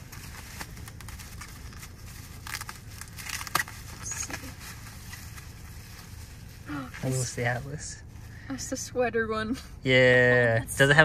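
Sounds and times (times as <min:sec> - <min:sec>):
bubble wrap crinkling: 0:00.0 - 0:07.8
bubble wrap snap: 0:02.4 - 0:04.5.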